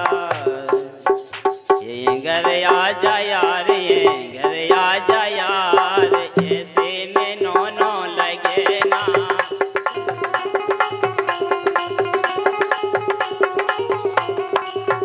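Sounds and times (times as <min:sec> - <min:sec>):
barrel drum rhythm: 0:00.0 - 0:15.0
jingling percussion: 0:00.0 - 0:15.0
electronic keyboard melody: 0:10.2 - 0:15.0.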